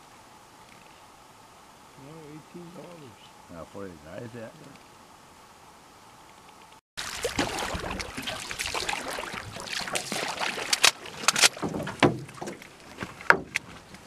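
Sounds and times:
paddle splashing through water: 0:07.0 - 0:14.0
sharp knocks: 0:11.4 - 0:12.6.

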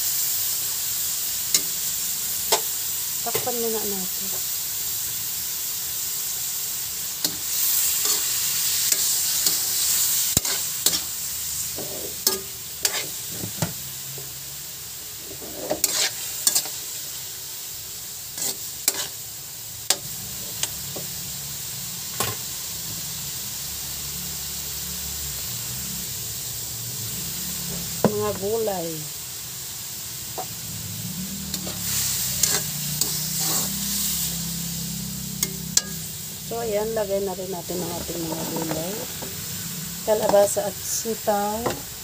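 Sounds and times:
food sizzling in hot oil: 0:00.0 - 0:42.0
spatula scraping and knocking wok: 0:01.4 - 0:04.6, 0:06.4 - 0:14.4, 0:15.0 - 0:17.4, 0:18.0 - 0:21.2, 0:22.1 - 0:23.1, 0:27.6 - 0:28.7, 0:30.3 - 0:42.0.

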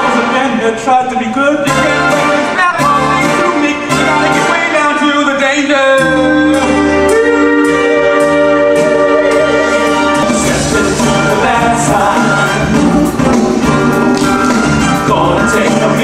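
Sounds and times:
held brass chords: 0:00.0 - 0:01.0, 0:01.6 - 0:16.0
steady beat: 0:06.0 - 0:16.0.

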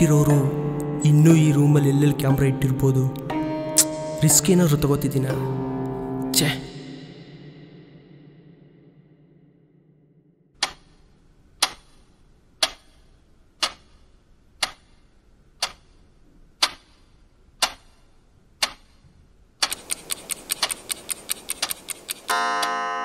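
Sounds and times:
clock ticking: 0:10.6 - 0:19.0, 0:19.6 - 0:22.9.

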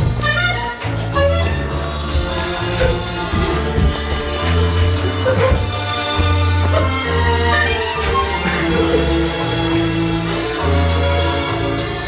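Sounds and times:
music with bass and melody: 0:00.0 - 0:12.0.

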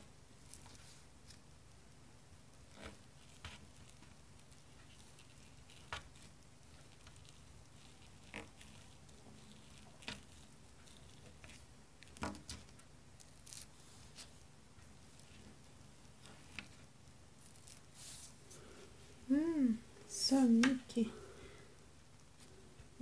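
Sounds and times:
low steady hum: 0:00.0 - 0:23.0
soft plastic toy clicks and taps: 0:20.4 - 0:21.0.

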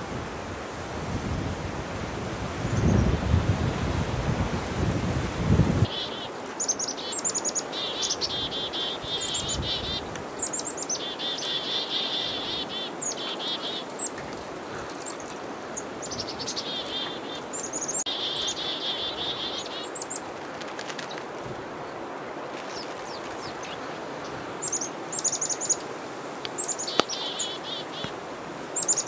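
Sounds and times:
chickadees mobbing calls: 0:05.8 - 0:21.2, 0:22.6 - 0:25.9, 0:26.5 - 0:28.1.

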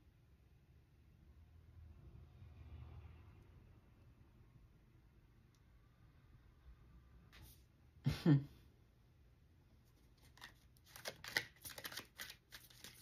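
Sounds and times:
cards being shuffled: 0:09.9 - 0:13.0.

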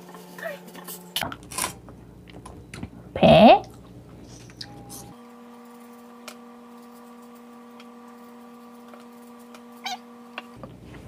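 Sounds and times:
knife crunching into pear: 0:01.2 - 0:01.8
steady low hum: 0:01.2 - 0:05.2, 0:10.5 - 0:11.0.

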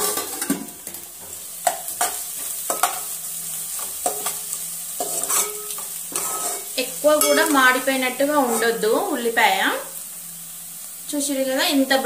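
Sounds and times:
metal spoon scraping a metal pan: 0:00.0 - 0:00.6, 0:03.8 - 0:08.8
onions sizzling in oil: 0:00.0 - 0:12.0.

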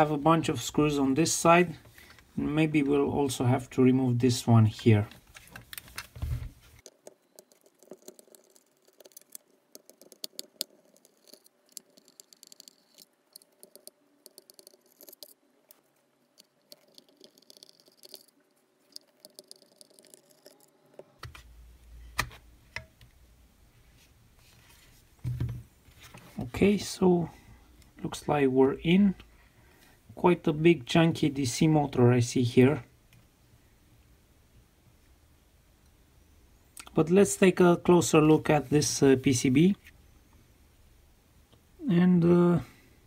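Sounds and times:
screwdriver clicking and ticking: 0:06.8 - 0:15.3.

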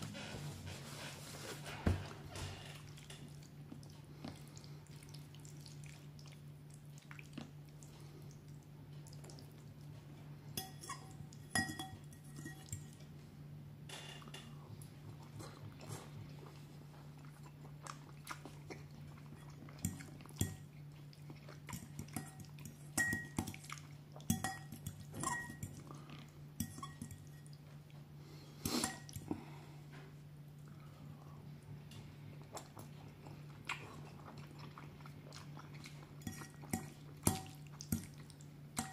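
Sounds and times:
fork clinking on ceramic bowl: 0:10.6 - 0:13.0, 0:21.8 - 0:23.6, 0:24.3 - 0:25.8, 0:26.6 - 0:27.6.

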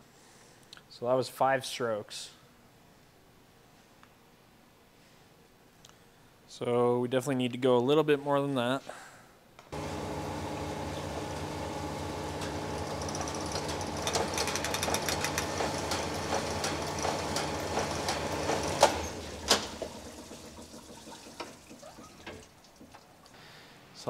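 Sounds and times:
honing machine motor hum: 0:09.7 - 0:20.7
machine shutting off clunk: 0:09.7 - 0:22.9.

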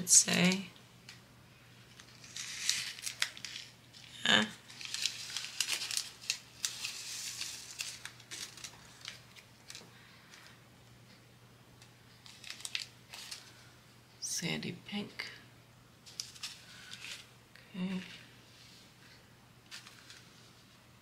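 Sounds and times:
plastic bag crinkling: 0:01.9 - 0:10.5, 0:12.2 - 0:13.7, 0:16.0 - 0:17.3.

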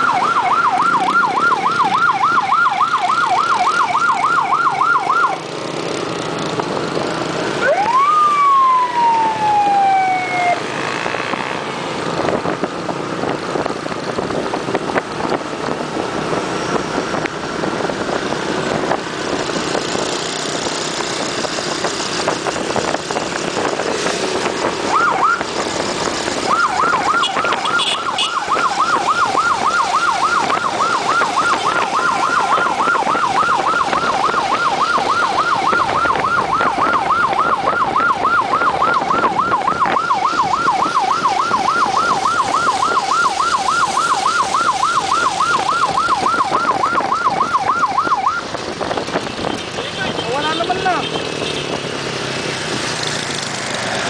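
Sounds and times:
siren yelping: 0:00.0 - 0:05.4, 0:07.6 - 0:10.8, 0:24.8 - 0:25.7, 0:26.3 - 0:48.6
road and wind noise: 0:00.0 - 0:54.0.

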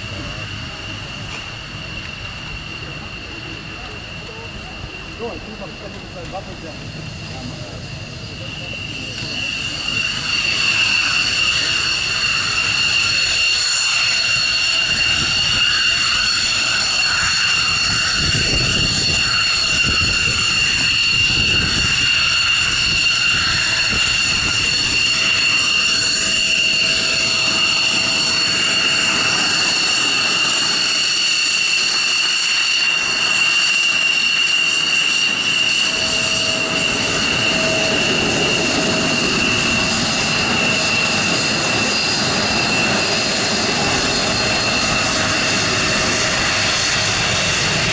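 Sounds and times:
jet engine whine: 0:00.0 - 0:47.9.

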